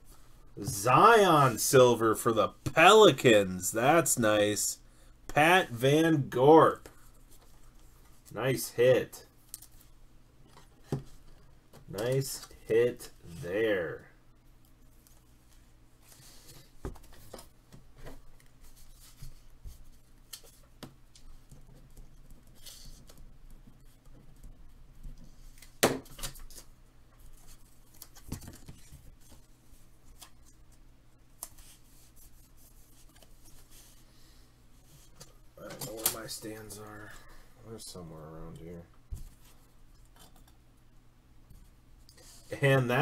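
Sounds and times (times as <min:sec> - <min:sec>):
faint low hum: 0:00.0 - 0:43.0
soft rustling of card packaging: 0:14.6 - 0:37.3.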